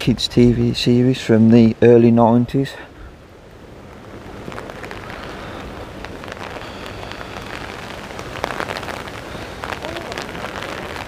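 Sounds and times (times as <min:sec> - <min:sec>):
rain pattering on umbrella: 0:03.2 - 0:11.0.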